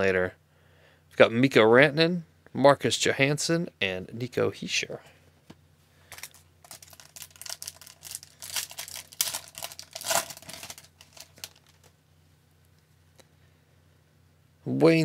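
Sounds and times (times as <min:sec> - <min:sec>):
foil wrapper crinkling and tearing: 0:06.1 - 0:11.9.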